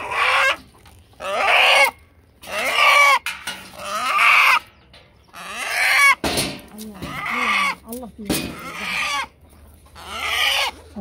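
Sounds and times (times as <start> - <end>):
rooster calling: 8.6 - 10.9.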